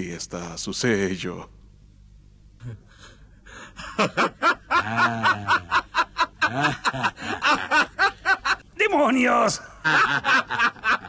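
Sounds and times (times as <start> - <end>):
man laughing: 3.6 - 8.6, 9.6 - 11.0.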